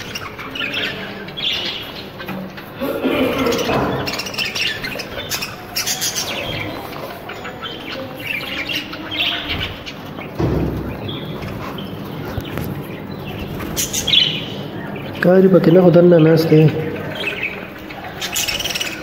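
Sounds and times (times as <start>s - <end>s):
budgerigars chirping: 0.0s - 19.0s
low thump: 10.4s - 11.7s.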